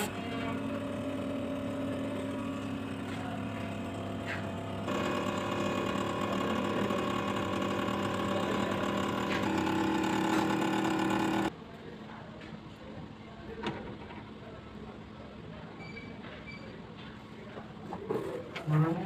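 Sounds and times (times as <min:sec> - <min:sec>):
hydraulic pump humming: 0:00.0 - 0:11.5.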